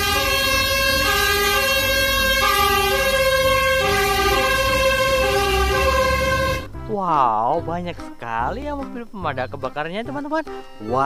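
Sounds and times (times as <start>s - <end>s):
fire engine two-tone siren: 0.0s - 6.7s.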